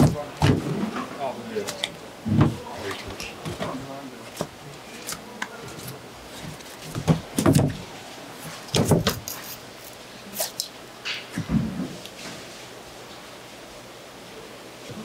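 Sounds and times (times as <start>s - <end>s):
shark thumping on plastic board: 6.9s - 7.8s, 8.7s - 9.3s.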